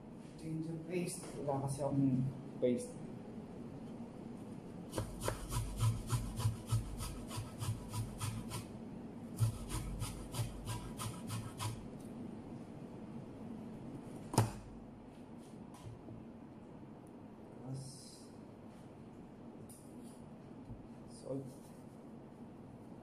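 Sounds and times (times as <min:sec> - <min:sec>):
garlic scraping on metal grater: 0:05.0 - 0:08.7, 0:09.4 - 0:11.8.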